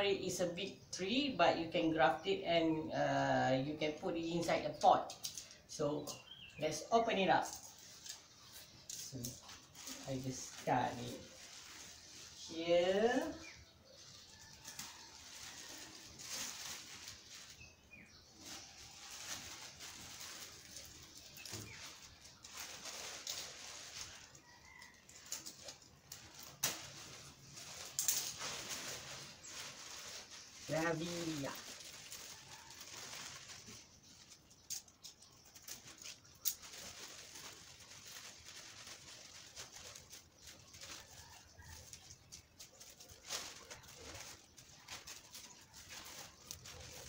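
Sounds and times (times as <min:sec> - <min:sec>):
plastic bags rustling: 0:03.9 - 0:47.0
bird chirp: 0:04.6 - 0:10.0, 0:17.0 - 0:24.0.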